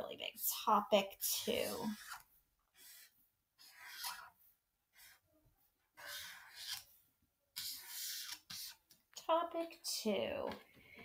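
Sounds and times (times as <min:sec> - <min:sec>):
marker writing on paper: 0:01.4 - 0:05.2, 0:06.0 - 0:06.9, 0:07.6 - 0:08.8.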